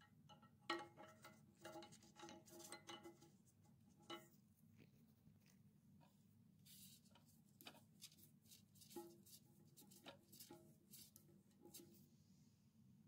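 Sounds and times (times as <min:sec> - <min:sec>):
low room hum: 0:00.0 - 0:13.0
gloves rubbing on plastic: 0:06.6 - 0:12.1.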